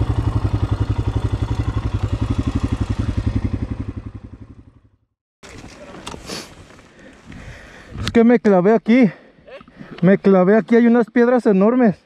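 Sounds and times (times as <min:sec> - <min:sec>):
motorcycle engine running at low revs: 0:00.0 - 0:05.1.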